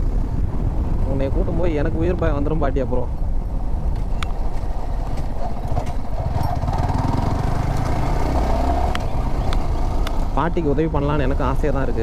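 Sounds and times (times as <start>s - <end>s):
road and wind noise: 0.0s - 12.0s
motorcycle engine running: 3.7s - 10.8s.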